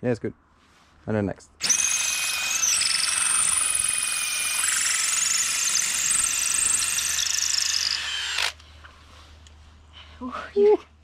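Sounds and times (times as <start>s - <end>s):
cordless drill boring into wood: 1.6s - 8.6s.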